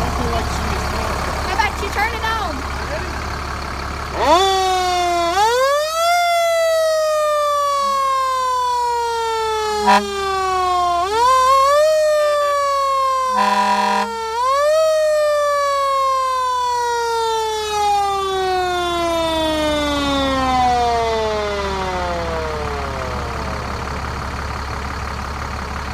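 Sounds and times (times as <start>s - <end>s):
horn blast: 9.8s - 10.2s, 13.3s - 14.2s.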